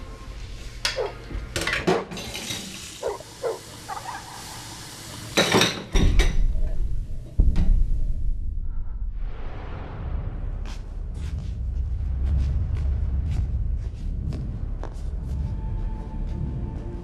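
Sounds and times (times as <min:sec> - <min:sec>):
dishes and cutlery clinking: 0:05.4 - 0:06.4
low rumble: 0:06.4 - 0:17.0.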